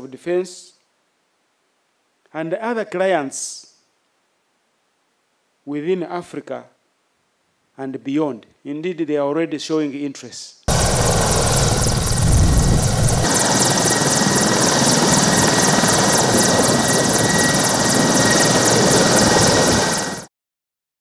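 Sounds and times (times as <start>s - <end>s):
turbine whine: 10.7s - 20.2s
helicopter rotor beating: 10.7s - 20.3s.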